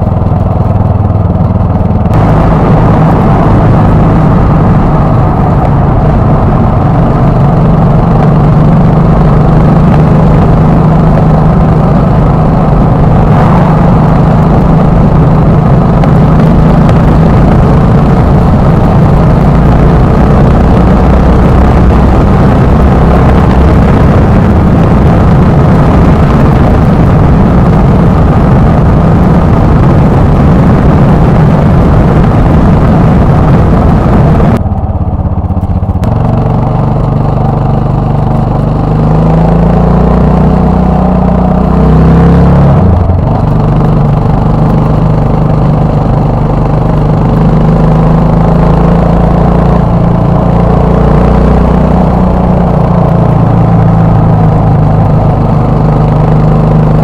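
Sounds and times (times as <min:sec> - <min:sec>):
wind rushing: 0:00.0 - 0:34.8
motorcycle engine running: 0:00.0 - 0:57.0.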